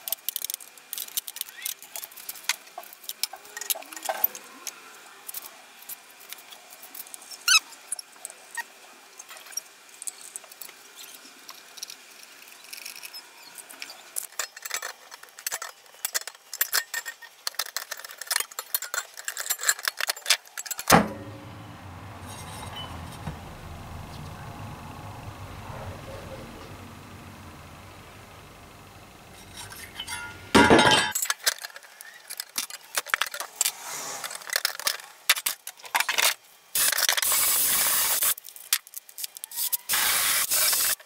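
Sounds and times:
steady low hum: 20.9s - 30.7s.

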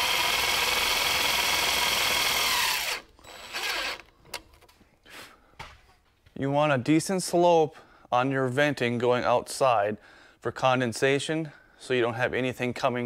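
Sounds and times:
cordless drill whirring: 0.0s - 4.1s.

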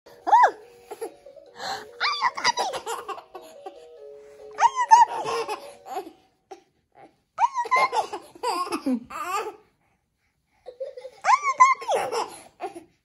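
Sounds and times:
simple tune of single notes: 0.1s - 6.5s
baby laughing and squealing: 2.0s - 3.5s.

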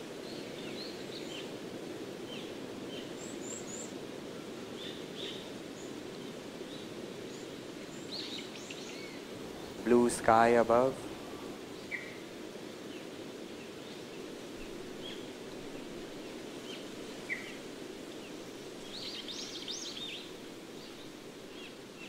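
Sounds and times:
steady low hiss: 0.0s - 22.0s
birds chirping: 6.7s - 22.0s.

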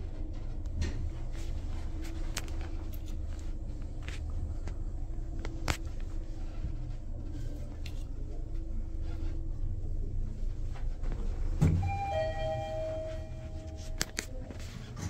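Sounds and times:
elevator humming: 0.0s - 15.0s
two-tone arrival chime: 11.8s - 14.2s.

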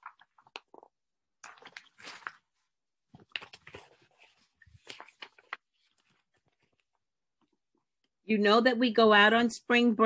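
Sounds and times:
rustling and clicking handling noise: 3.1s - 7.6s.

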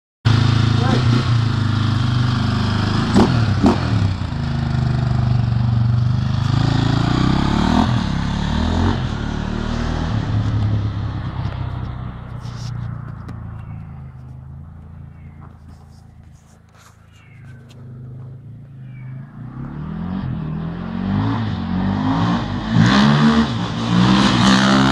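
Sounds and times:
dirt bike engine revving: 0.3s - 11.3s, 19.2s - 24.9s.

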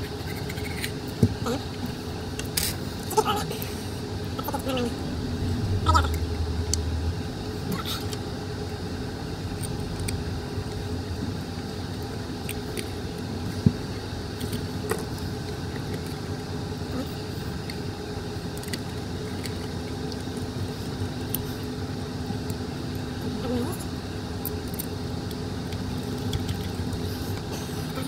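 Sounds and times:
steady background rumble: 1.0s - 28.0s.

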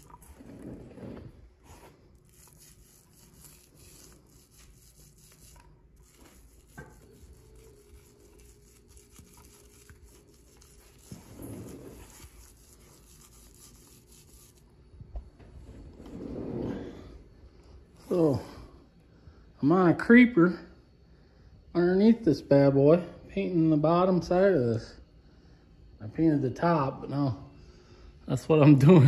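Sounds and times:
paint roller crackling: 0.0s - 14.6s.

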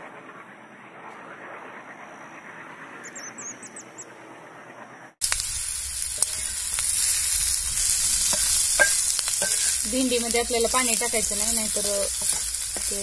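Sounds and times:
nestling birds chirping: 2.9s - 4.2s, 5.2s - 13.0s
food sizzling in oil: 5.2s - 13.0s
wooden spatula scraping a pan: 6.2s - 13.0s.

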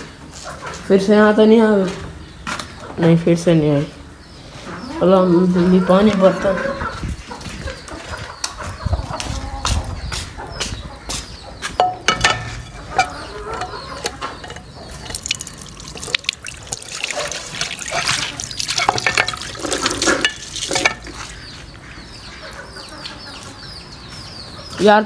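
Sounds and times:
water filling a container: 15.0s - 21.1s.

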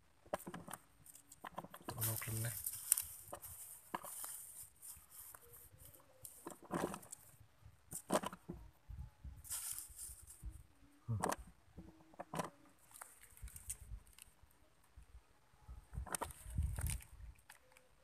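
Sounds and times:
dry straw and grass rustling: 1.0s - 7.4s, 9.4s - 10.6s, 12.8s - 14.6s, 16.2s - 17.8s.

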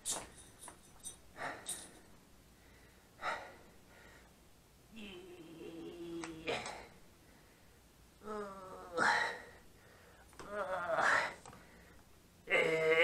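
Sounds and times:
person straining grunt: 4.9s - 7.0s, 8.2s - 9.5s, 10.4s - 11.4s, 12.5s - 13.0s.

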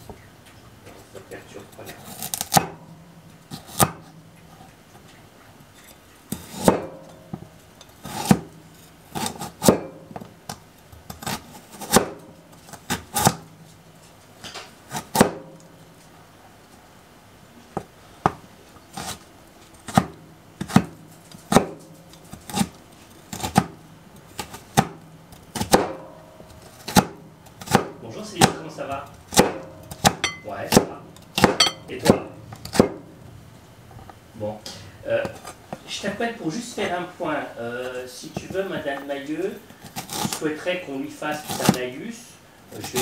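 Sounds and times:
dishes and cutlery clinking: 30.2s - 30.6s, 31.6s - 31.9s.

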